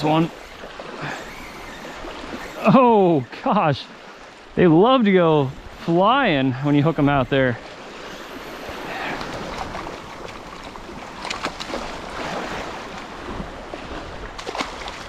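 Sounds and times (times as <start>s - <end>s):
water splashing: 6.8s - 15.0s
wind on microphone: 7.1s - 15.0s
waves lapping on pebbles: 7.7s - 15.0s.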